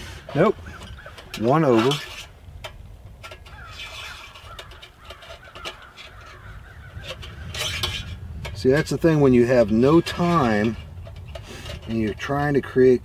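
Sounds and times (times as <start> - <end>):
metal stove parts clicking: 0.0 - 13.0
rustle: 0.0 - 13.0
faint bird calls: 0.3 - 1.5, 3.2 - 7.6.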